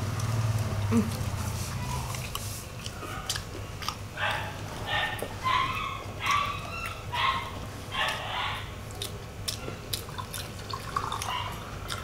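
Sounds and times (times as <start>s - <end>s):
dog barking: 3.0s - 3.4s, 4.2s - 8.8s, 11.2s - 11.6s.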